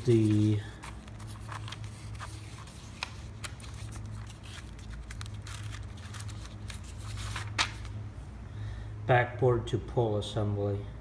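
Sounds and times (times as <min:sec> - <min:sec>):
paper pages rustling: 0:00.0 - 0:07.9.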